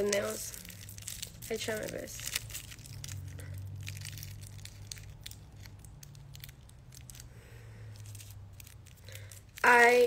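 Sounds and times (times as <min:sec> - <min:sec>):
low steady hum: 0:00.0 - 0:10.0
paper wrap crinkling: 0:00.0 - 0:10.0.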